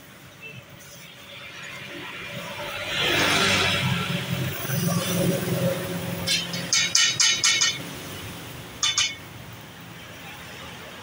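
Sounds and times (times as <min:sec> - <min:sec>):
road traffic hum: 0:00.0 - 0:11.0
metal spatula clinking on griddle: 0:06.2 - 0:07.9, 0:08.8 - 0:09.3.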